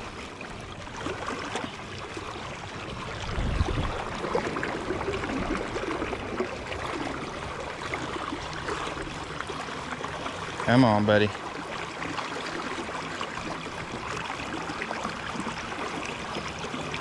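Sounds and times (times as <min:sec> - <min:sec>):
river gurgling: 0:00.0 - 0:17.0
low rumble: 0:03.0 - 0:07.1.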